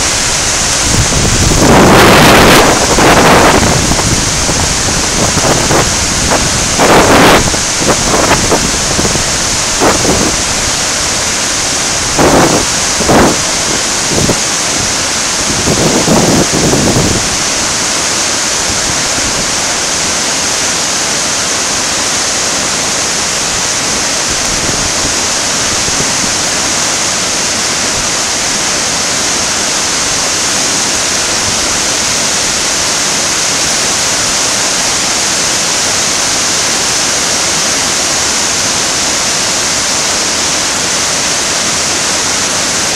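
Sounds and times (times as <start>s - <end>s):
wind buffeting microphone: 0.0s - 19.6s
whitewater rushing over rocks: 0.0s - 42.9s.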